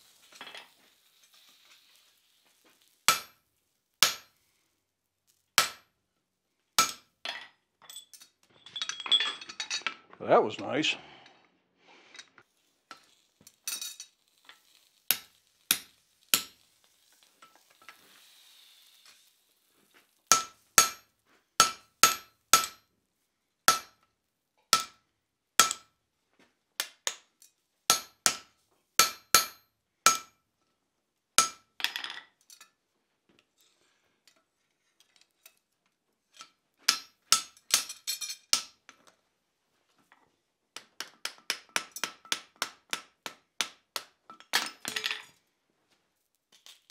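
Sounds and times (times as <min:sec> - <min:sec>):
hammer striking steel on anvil: 0:03.1 - 0:03.4, 0:04.0 - 0:04.3, 0:05.6 - 0:05.9, 0:06.8 - 0:07.1, 0:15.1 - 0:16.6, 0:20.3 - 0:22.8, 0:23.7 - 0:24.0, 0:24.7 - 0:25.0, 0:25.6 - 0:25.9, 0:27.9 - 0:30.4, 0:31.4 - 0:31.7, 0:36.9 - 0:38.8.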